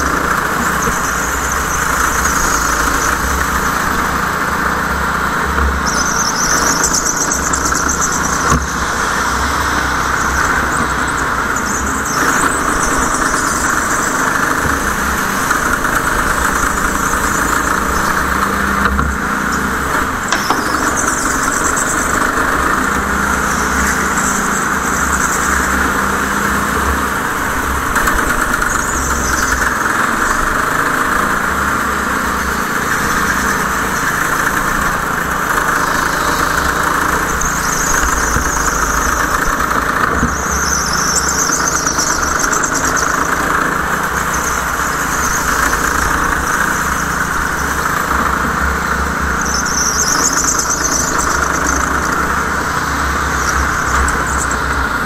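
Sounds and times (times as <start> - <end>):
go-kart engine running: 0.0 - 55.0
high-pitched tyre squeal: 0.0 - 55.0.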